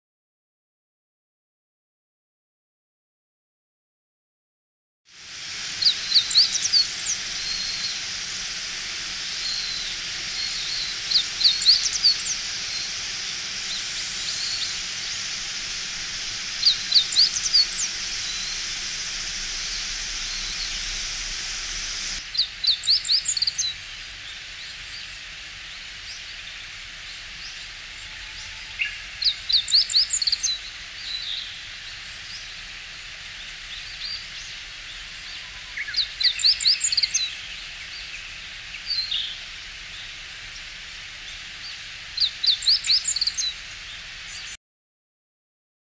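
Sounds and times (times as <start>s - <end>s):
steady high hiss: 5.1s - 44.6s
bird singing high notes: 5.7s - 23.7s.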